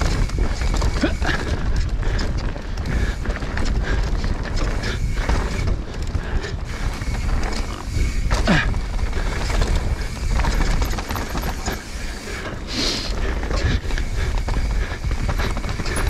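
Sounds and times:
bike rattling over rocks: 0.0 - 16.0.

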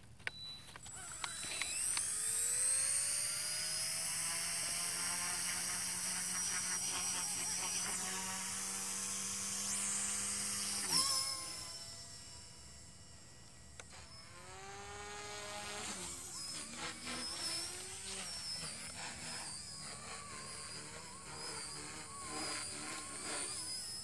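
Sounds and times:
clicks: 0.0 - 2.2
rc helicopter motor whine: 0.2 - 24.0.

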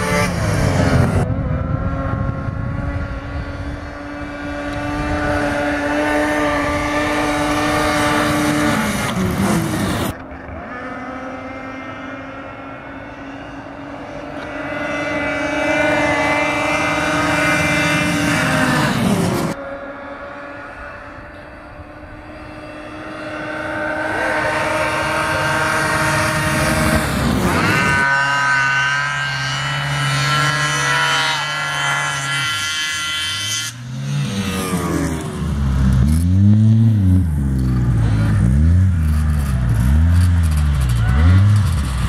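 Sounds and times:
snowmobile engine revving: 0.0 - 42.0
snowmobile engines racing: 0.0 - 42.0.

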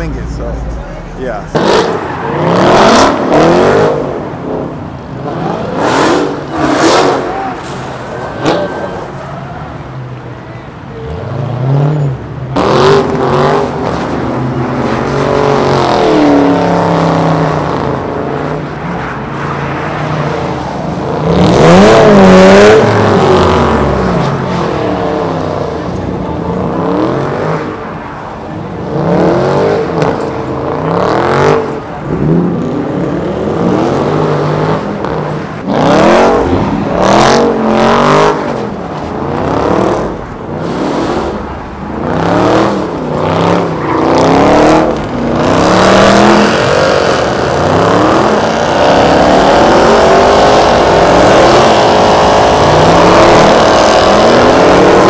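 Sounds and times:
car engine revving hard: 1.5 - 7.4, 12.5 - 18.0, 21.1 - 24.1, 28.9 - 55.0.

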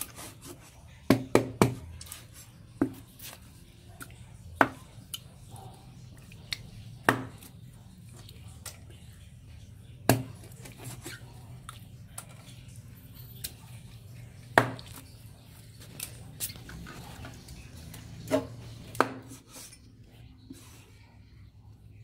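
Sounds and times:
knife chopping on wooden board: 7.0 - 7.5, 10.1 - 10.3, 18.3 - 19.4.

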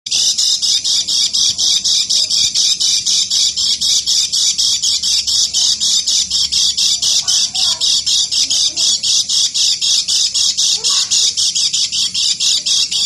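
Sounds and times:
bird repeating high notes: 0.1 - 13.0.

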